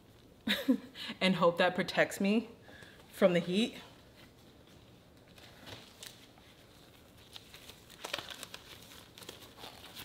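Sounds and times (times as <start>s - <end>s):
plastic gloves crinkling: 4.2s - 10.0s.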